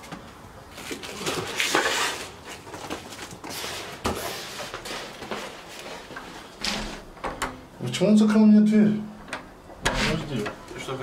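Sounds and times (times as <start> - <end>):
cardboard box rustling and scraping: 0.9 - 5.6.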